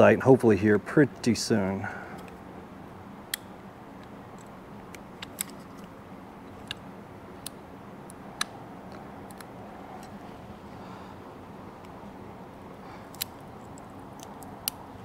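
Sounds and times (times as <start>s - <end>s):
low shop hum: 0.0s - 15.0s
light tool clicks: 13.0s - 15.0s.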